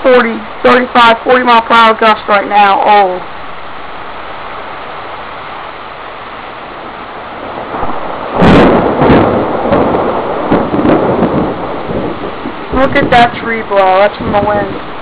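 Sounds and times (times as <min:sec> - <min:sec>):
heavy rain pouring: 0:00.0 - 0:15.0
thunderclap: 0:06.8 - 0:15.0.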